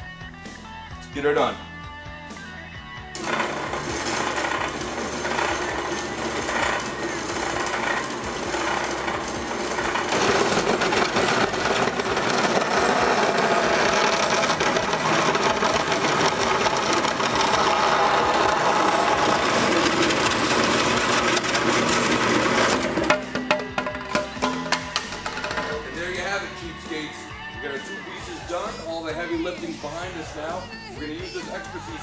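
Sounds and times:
bandsaw cutting plastic pipe: 0:03.2 - 0:26.3.

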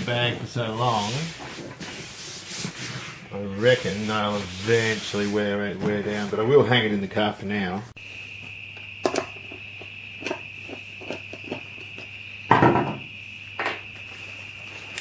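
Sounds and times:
carpet scraping rustle: 0:00.0 - 0:06.9.

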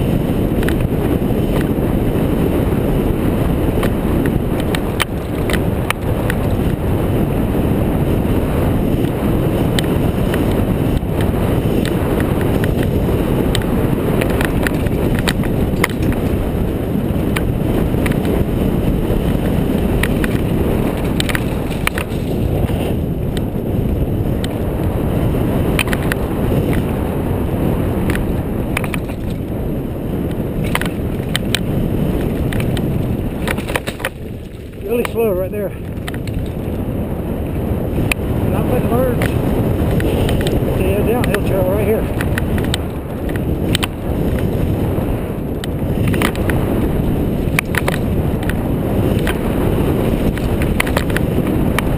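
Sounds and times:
bike clicks and rattles: 0:00.0 - 0:51.9
wind rush on microphone: 0:00.0 - 0:51.9.

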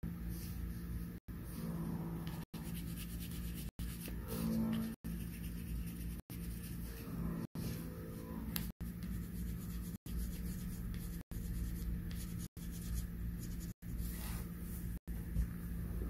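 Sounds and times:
low hum: 0:00.0 - 0:16.0
pencil scratching on paper: 0:08.9 - 0:14.4.

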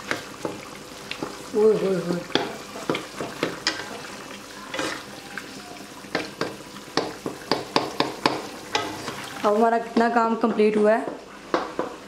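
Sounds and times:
meat sizzling in a pan: 0:00.0 - 0:12.0
utensil scraping against pan: 0:04.7 - 0:05.1.

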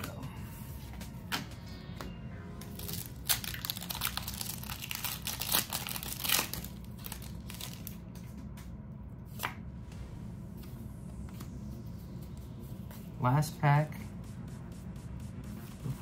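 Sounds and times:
foil wrapper crinkling and tearing: 0:02.8 - 0:08.0.

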